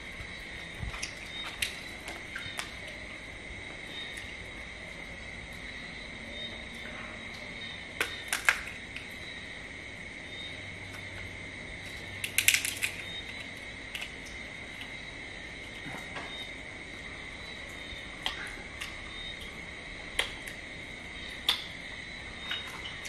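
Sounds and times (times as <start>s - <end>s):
crab shell cracking: 8.0s - 9.1s, 12.2s - 14.9s.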